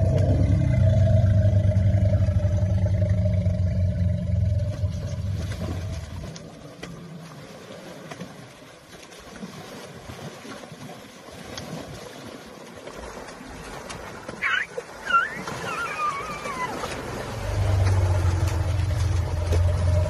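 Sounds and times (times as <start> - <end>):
low rumble: 0.0 - 7.0, 16.4 - 20.0
river water splashing: 0.0 - 20.0.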